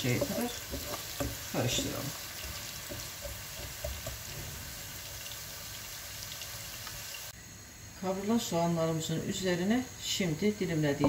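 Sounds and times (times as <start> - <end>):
wooden spatula tapping: 0.0 - 4.3
onions sizzling in oil: 0.0 - 7.4.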